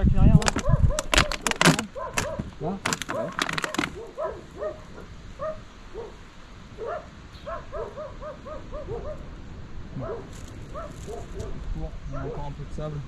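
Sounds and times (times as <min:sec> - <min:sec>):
dogs barking: 0:00.5 - 0:12.6.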